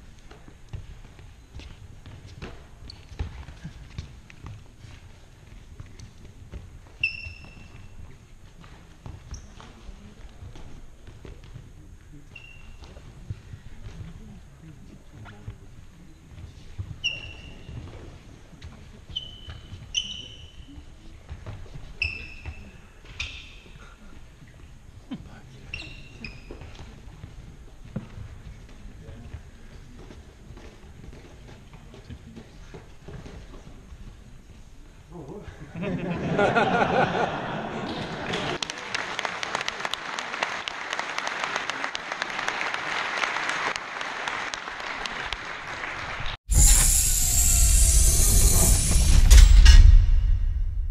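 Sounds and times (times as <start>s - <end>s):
soft footfalls: 0.0s - 19.9s
shoes squeaking on wooden floor: 0.0s - 25.0s, 25.6s - 34.3s
spectators applauding: 38.2s - 46.4s.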